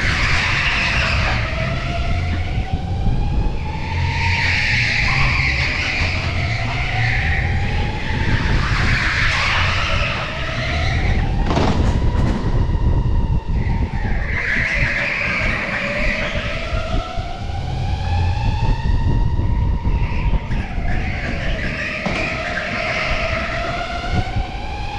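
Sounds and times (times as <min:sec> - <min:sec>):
tyres squealing: 0:20.1 - 0:24.2.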